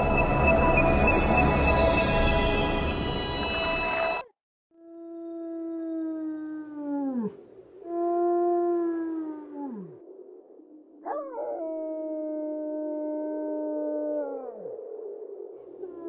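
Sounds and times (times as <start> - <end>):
long howls: 4.8 - 10.1, 10.8 - 16.0.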